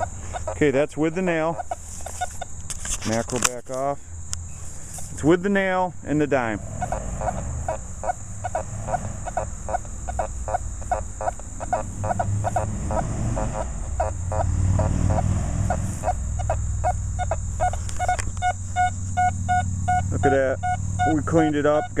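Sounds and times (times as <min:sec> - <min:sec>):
metal detector beeping: 0:00.0 - 0:00.6, 0:16.0 - 0:22.0
low rumble: 0:05.9 - 0:17.7.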